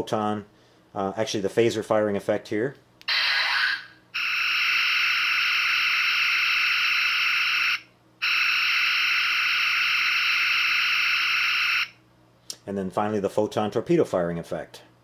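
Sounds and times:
sci-fi phaser blasts from small speaker: 3.1s - 10.9s.

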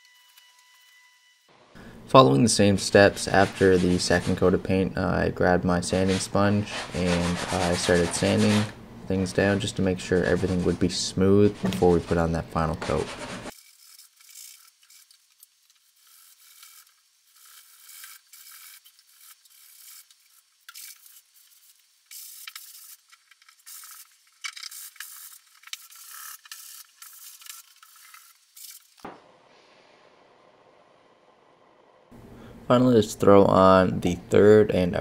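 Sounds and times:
sanding sponge scratching wood: 2.9s - 4.6s, 5.8s - 8.8s, 9.4s - 15.2s.

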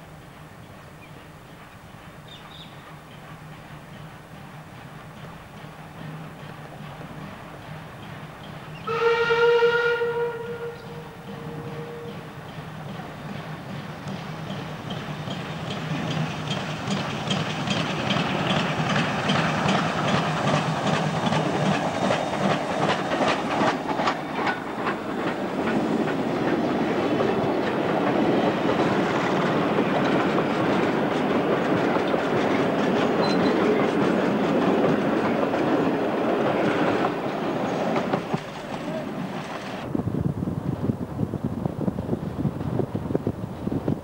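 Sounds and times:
steam locomotive chuffing: 0.0s - 39.9s
wheels clicking over rail joints: 11.3s - 39.9s.

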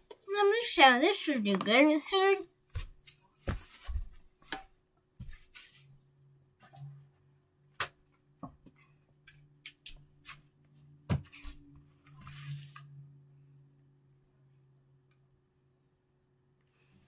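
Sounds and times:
low steady hum: 5.2s - 17.0s.

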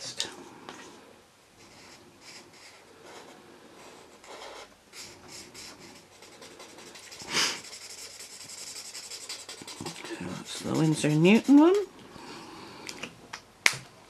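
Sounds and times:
marker nib scratching on paper: 4.0s - 11.9s.

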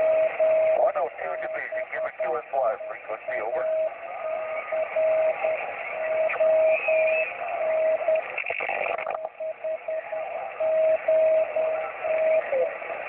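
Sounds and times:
morse code beeps: 0.0s - 10.0s
radio static hiss: 0.0s - 13.0s.

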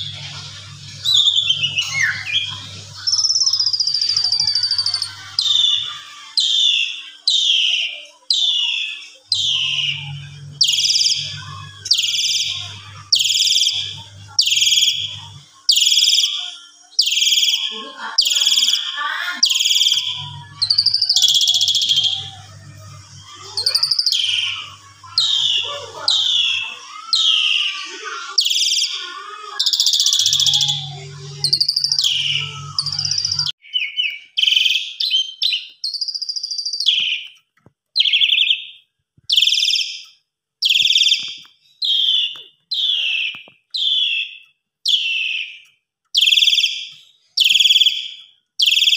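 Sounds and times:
starling shrill whistled calls: 1.0s - 22.3s, 23.3s - 33.5s, 40.6s - 45.6s.

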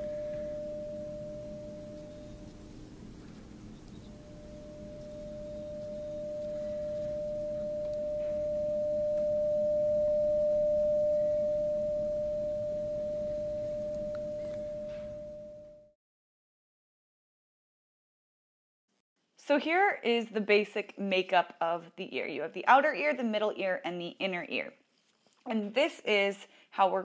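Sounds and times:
steady pure tone: 0.0s - 15.9s.

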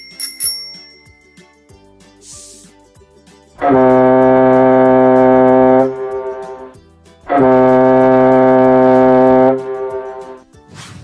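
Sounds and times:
deep ship's horn blasts: 3.6s - 10.4s.

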